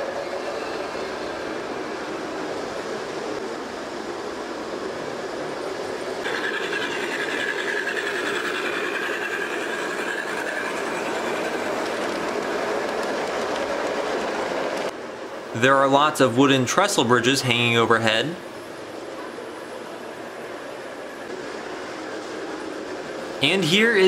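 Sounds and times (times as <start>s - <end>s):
model train wheels rumbling: 5.7s - 14.9s.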